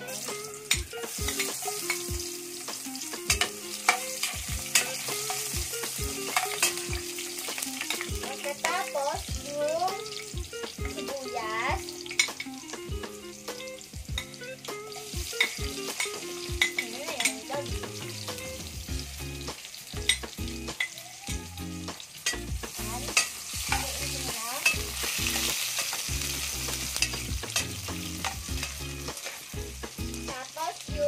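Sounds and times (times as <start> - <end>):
vegetables sizzling in hot oil: 0.0 - 31.0
metal spoon clinking and scraping: 0.6 - 2.1, 3.3 - 8.1, 12.0 - 12.5, 15.3 - 17.5, 22.2 - 29.6.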